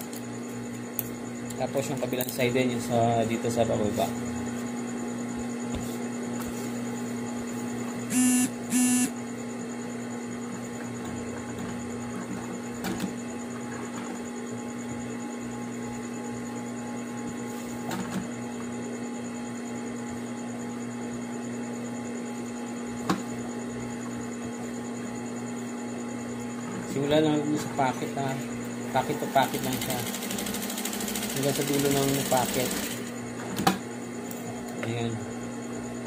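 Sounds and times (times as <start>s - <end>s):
electrical hum: 0.0s - 36.0s
sewing machine running: 29.3s - 33.1s.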